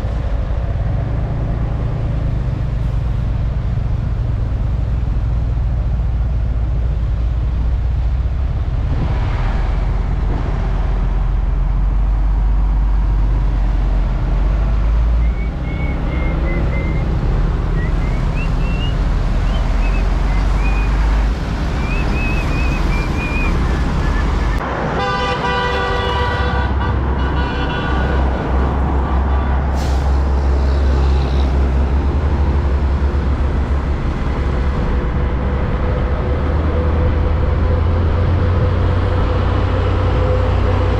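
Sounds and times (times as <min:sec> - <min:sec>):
diesel truck engines rumbling: 0:00.0 - 0:40.9
heavy road traffic: 0:00.0 - 0:40.9
vehicle horn: 0:25.0 - 0:28.4.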